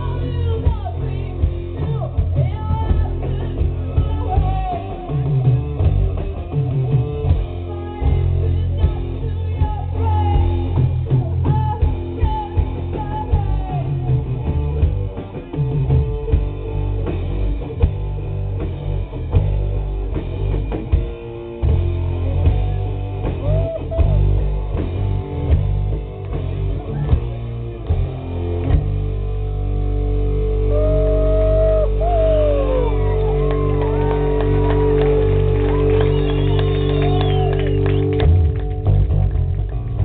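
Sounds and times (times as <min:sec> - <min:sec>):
woman singing: 0:00.0 - 0:05.2, 0:07.7 - 0:10.5, 0:11.2 - 0:14.1
bass guitar: 0:00.0 - 0:40.0
drum kit: 0:00.0 - 0:40.0
electric guitar: 0:00.0 - 0:40.0.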